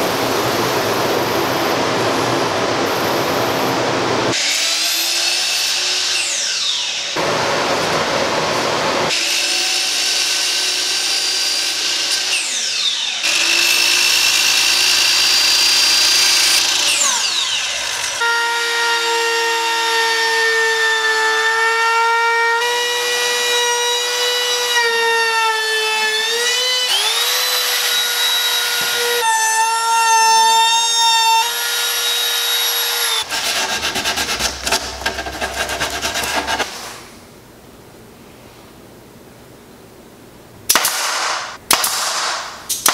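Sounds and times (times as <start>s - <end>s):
power cutting tool: 4.3s - 7.5s, 9.1s - 20.7s, 22.5s - 36.7s.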